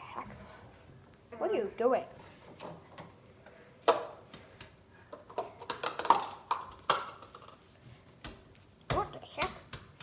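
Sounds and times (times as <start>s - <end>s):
plastic bowls knocking on stone: 5.2s - 7.5s.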